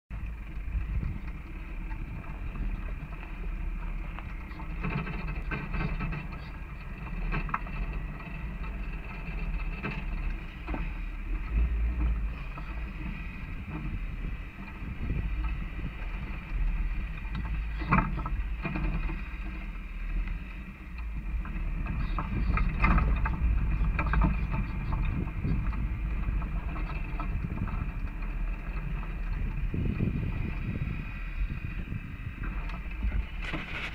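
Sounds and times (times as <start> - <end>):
engine and tyres rumbling: 0.1 - 33.9
vehicle rattles and knocks: 0.1 - 33.9.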